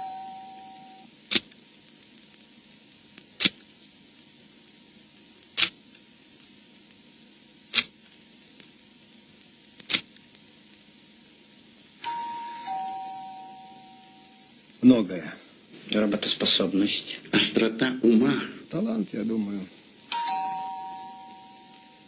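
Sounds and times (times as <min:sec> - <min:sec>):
faint steady hiss: 0:00.0 - 0:22.0.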